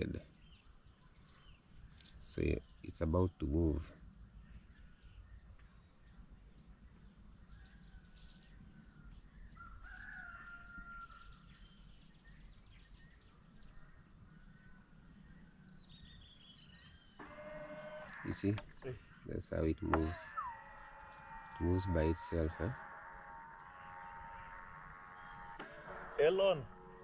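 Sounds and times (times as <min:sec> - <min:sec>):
crickets droning: 0:00.0 - 0:27.0
distant bird calls: 0:00.0 - 0:27.0
low rumble: 0:20.6 - 0:27.0.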